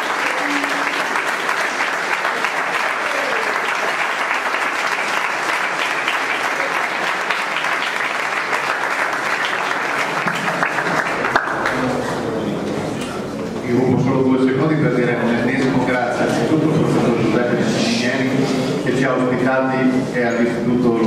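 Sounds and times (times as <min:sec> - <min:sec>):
audience applauding: 0:00.0 - 0:12.3.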